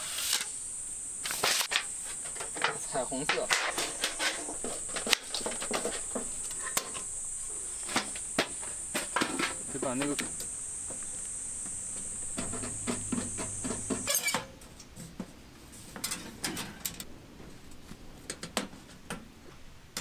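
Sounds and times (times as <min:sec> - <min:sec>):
high insect drone: 0:00.0 - 0:14.6.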